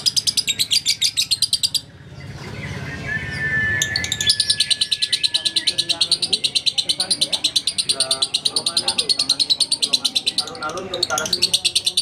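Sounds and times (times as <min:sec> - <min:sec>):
bird chattering high chirps: 0:00.0 - 0:01.9, 0:03.2 - 0:12.0
steady high whistle: 0:03.0 - 0:05.4.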